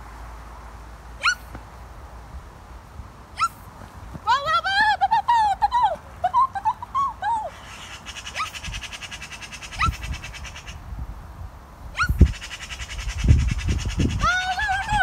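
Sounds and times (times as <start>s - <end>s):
birds singing trills and chirps: 7.4s - 11.0s, 12.0s - 15.0s.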